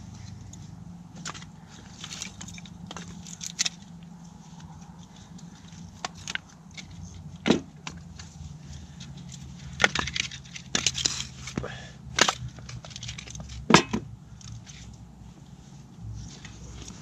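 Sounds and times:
firewood knocking together: 7.4 - 8.0.

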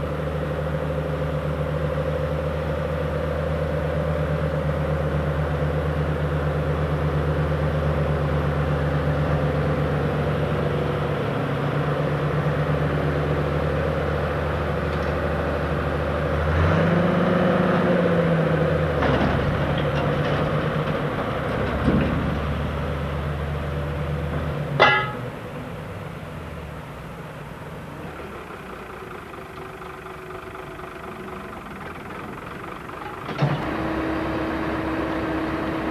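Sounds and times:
tractor engine running: 0.0 - 35.9.

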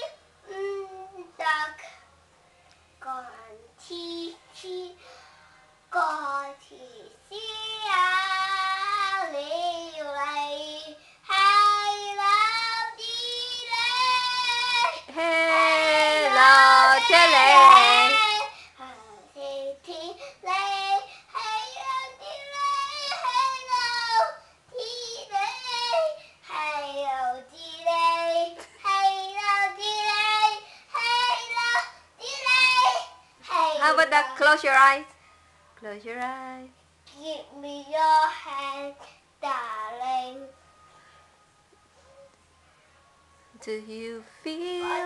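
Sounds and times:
small boy singing: 5.9 - 33.8, 37.1 - 40.6, 44.8 - 45.0
boy singing long held notes: 12.8 - 18.6.

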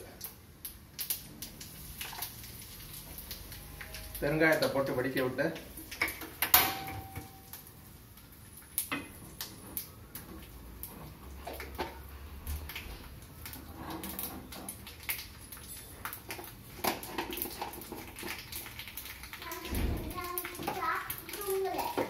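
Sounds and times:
seeds spluttering in hot fat: 7.4 - 22.0.

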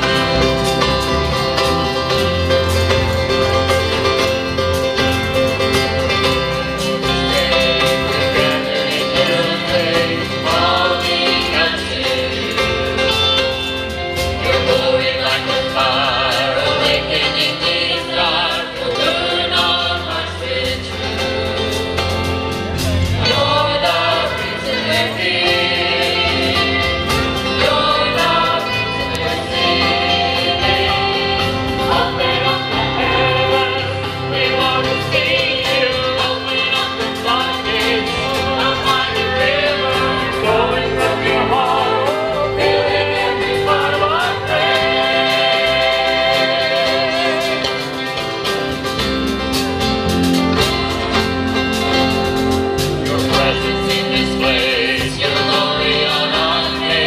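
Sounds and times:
acoustic guitars: 0.0 - 57.0
keyboard: 0.0 - 57.0
group singing over loudspeakers: 7.0 - 21.8, 22.8 - 48.7, 52.9 - 57.0.

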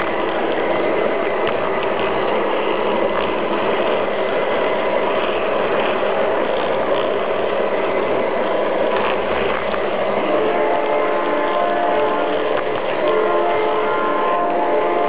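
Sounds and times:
faint clicks: 0.0 - 0.7, 1.4 - 4.3, 8.4 - 10.0, 10.8 - 13.2
model train whirring rattle: 0.0 - 15.0.

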